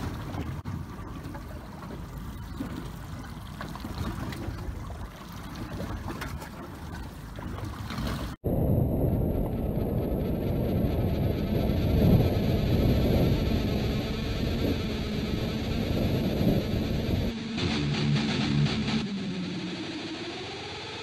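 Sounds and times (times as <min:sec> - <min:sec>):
sea water sloshing around boat: 0:00.0 - 0:08.4
low rumble: 0:08.3 - 0:20.9.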